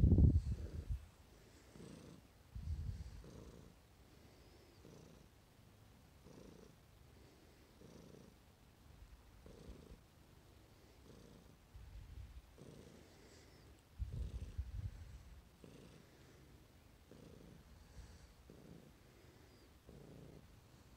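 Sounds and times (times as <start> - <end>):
cat purring: 0.0 - 8.4, 9.2 - 20.9.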